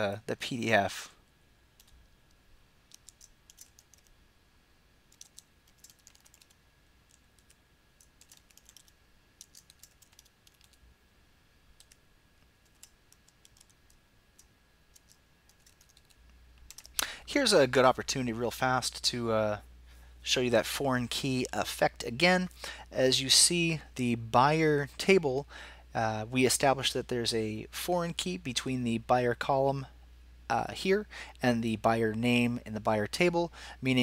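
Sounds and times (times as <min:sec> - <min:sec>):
typing on computer keyboard: 0:02.9 - 0:04.1, 0:05.1 - 0:10.8, 0:11.8 - 0:12.0, 0:12.6 - 0:17.0.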